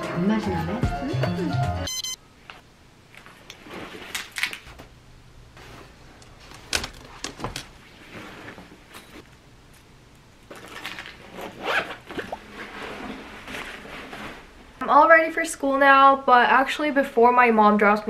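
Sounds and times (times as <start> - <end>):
zippers being pulled: 10.6 - 14.4.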